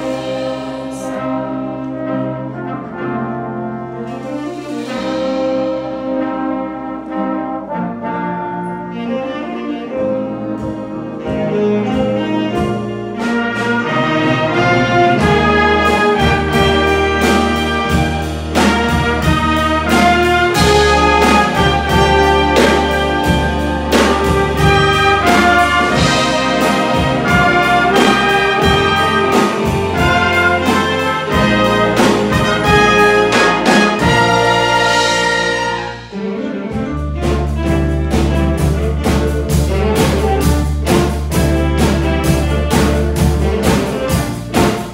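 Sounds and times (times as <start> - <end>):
big band playing swing: 0.0 - 44.9.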